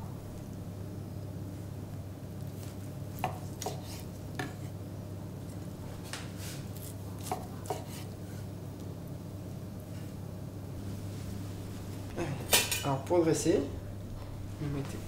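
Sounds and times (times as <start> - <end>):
low hum: 0.0 - 2.4, 8.6 - 15.0
knife slicing meat: 2.6 - 4.1, 6.8 - 8.1.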